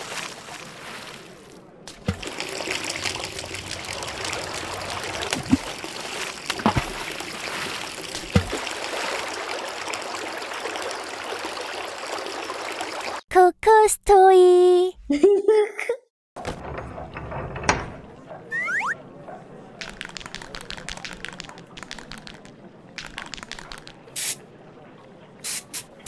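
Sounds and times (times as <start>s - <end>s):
water gushing: 0.0s - 13.2s
water plops: 0.0s - 13.2s.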